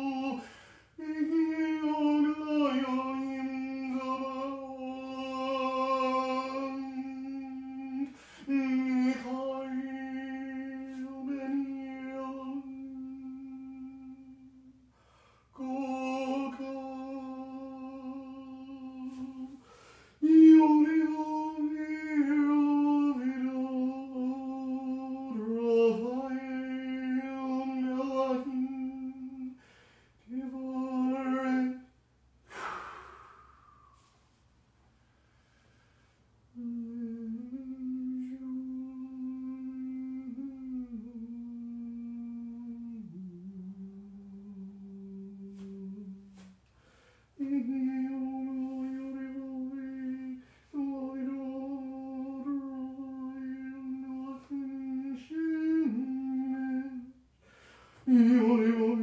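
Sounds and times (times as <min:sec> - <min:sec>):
breathy rush: 0:32.4 - 0:34.3.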